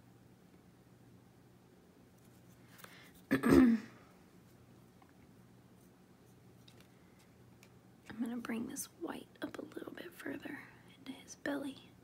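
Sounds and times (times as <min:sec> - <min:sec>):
faint room hum: 0:00.0 - 0:12.0
person making throat sound: 0:03.3 - 0:04.0.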